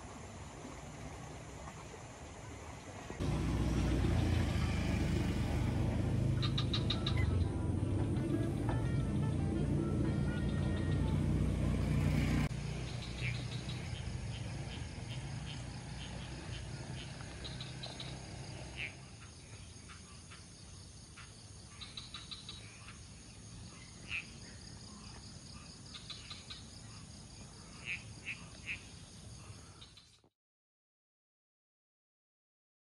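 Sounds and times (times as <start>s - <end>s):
frogs chirping calls: 0.8s - 8.5s, 10.1s - 30.2s
background music: 5.6s - 12.5s.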